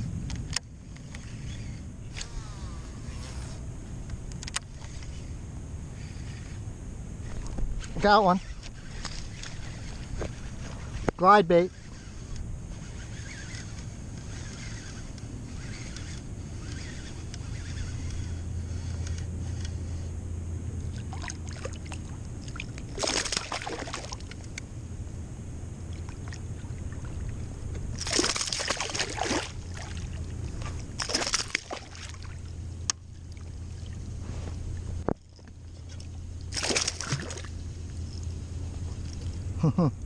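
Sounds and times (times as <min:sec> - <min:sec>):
steady low hum: 0:00.0 - 0:40.0
fish splashing at water surface: 0:21.0 - 0:24.3, 0:28.0 - 0:30.2, 0:31.0 - 0:32.4, 0:36.5 - 0:37.6.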